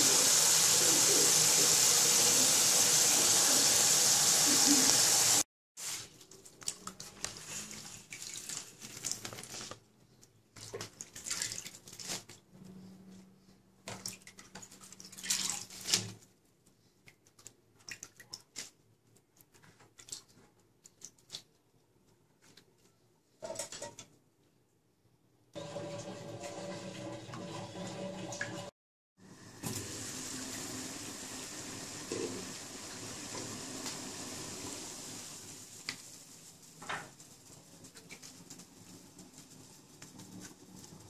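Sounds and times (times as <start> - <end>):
wet leaves rustling: 5.8 - 9.8.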